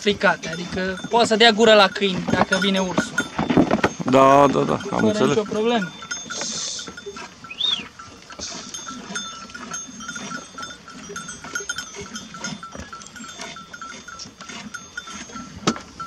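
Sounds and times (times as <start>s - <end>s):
sheep bells clinking: 0.0s - 16.0s.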